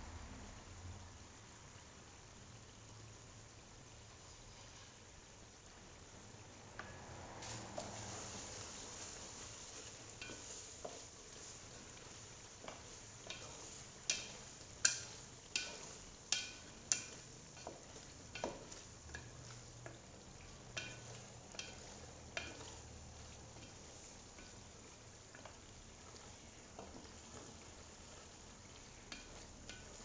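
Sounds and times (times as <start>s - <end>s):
paste sizzling: 4.1s - 30.0s
utensil scraping a steel pot: 7.8s - 30.0s.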